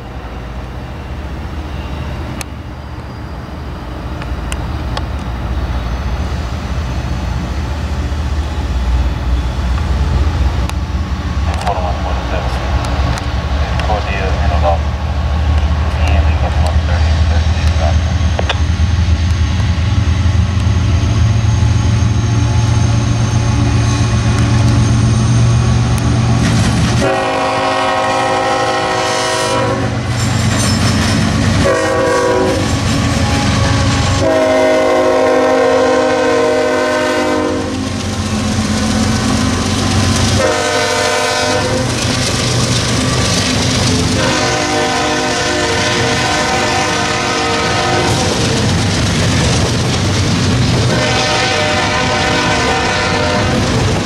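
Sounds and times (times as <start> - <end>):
locomotive engine rumbling: 0.0 - 54.0
locomotive air horn blasts: 27.0 - 30.0, 31.6 - 32.7, 33.6 - 37.8, 40.4 - 41.8, 44.2 - 48.3, 50.9 - 53.6.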